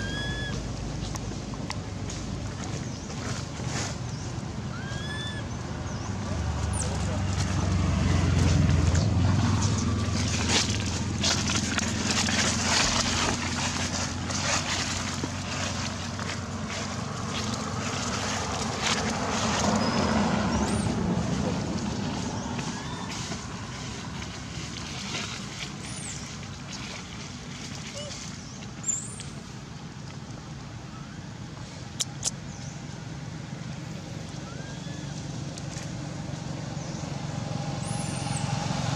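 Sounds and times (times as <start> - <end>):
footsteps crunching dry leaves: 0.0 - 4.5, 7.0 - 28.4.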